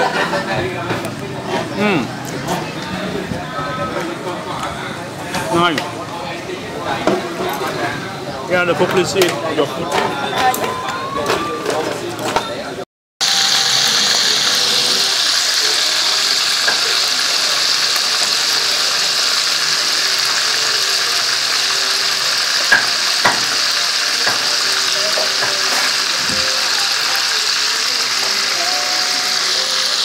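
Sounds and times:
hot oil sizzling: 13.2s - 30.0s.

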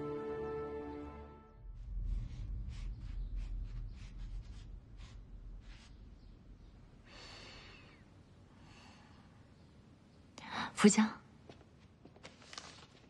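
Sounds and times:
low music: 0.0s - 5.9s
faint breath: 7.0s - 9.5s
paper rustles: 12.0s - 13.0s.

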